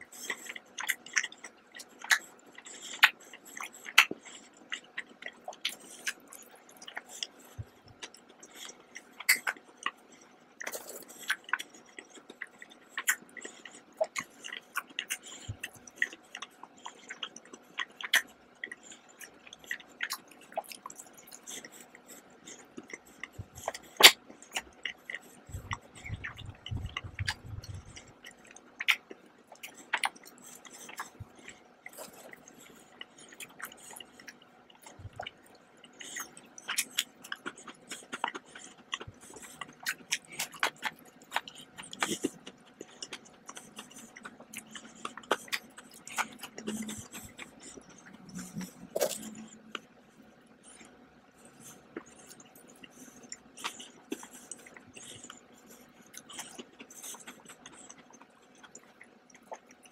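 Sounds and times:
mouth chewing clicks and smacks: 0:00.0 - 0:59.9
low rumble: 0:25.5 - 0:28.1.

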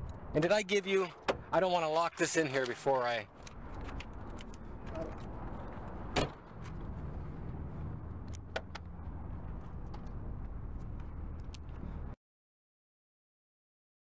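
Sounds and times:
steady low rumble: 0:03.2 - 0:12.2
car door thump: 0:06.1 - 0:06.4.

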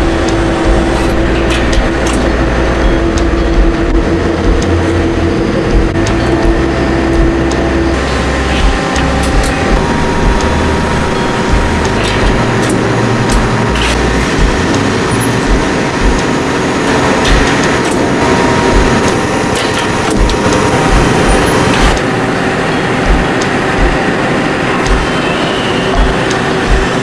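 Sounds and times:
low thuds: 0:00.0 - 0:22.1, 0:23.0 - 0:24.1, 0:24.8 - 0:25.2
sharp metallic clanks: 0:08.4 - 0:22.1.

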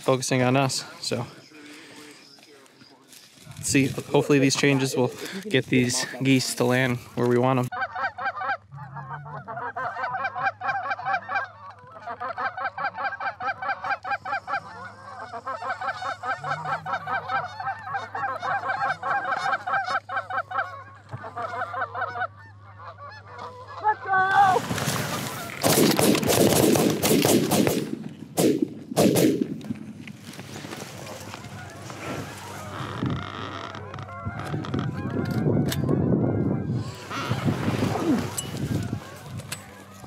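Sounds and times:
geese honking: 0:01.2 - 0:25.7, 0:30.2 - 0:40.0
shotgun shots: 0:25.6 - 0:29.8.

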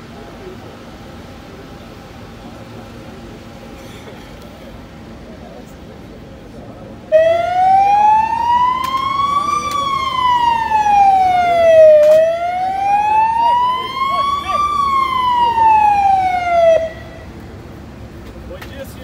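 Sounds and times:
ambulance siren wailing: 0:07.1 - 0:17.4.

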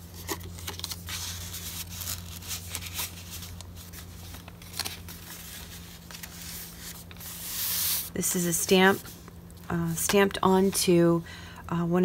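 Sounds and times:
paper rustling and crinkling: 0:00.0 - 0:08.2
steady low hum: 0:00.0 - 0:12.0.

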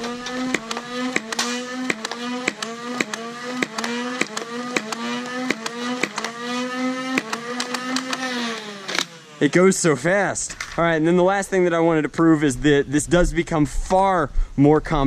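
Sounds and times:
flywheel motors humming: 0:00.0 - 0:09.4
toy blaster shots cracking: 0:00.0 - 0:09.4.

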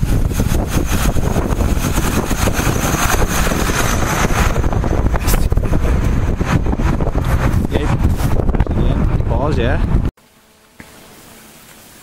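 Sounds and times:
tyres on slushy road: 0:00.0 - 0:08.3
tractor engine running: 0:00.0 - 0:08.6.

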